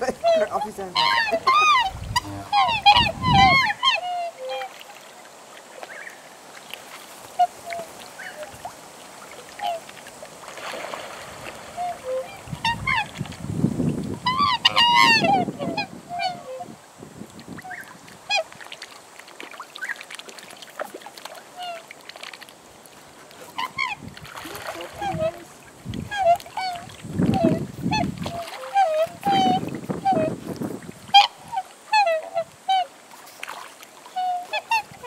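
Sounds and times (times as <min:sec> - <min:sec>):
black swans calling: 0:00.0 - 0:06.3, 0:07.2 - 0:10.0, 0:11.3 - 0:13.3, 0:14.0 - 0:16.8, 0:17.5 - 0:18.7, 0:19.6 - 0:20.1, 0:21.4 - 0:22.0, 0:23.3 - 0:33.3, 0:34.0 - 0:35.0
low rumbling noise: 0:01.3 - 0:03.7.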